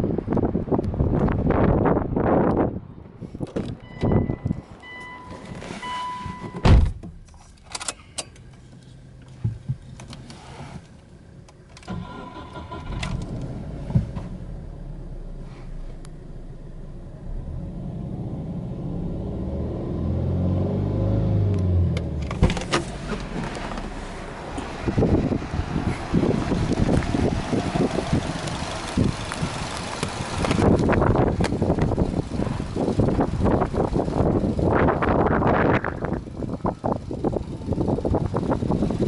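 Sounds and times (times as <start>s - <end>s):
heavy thump: 6.5s - 7.2s
car door clicks: 21.9s - 23.9s.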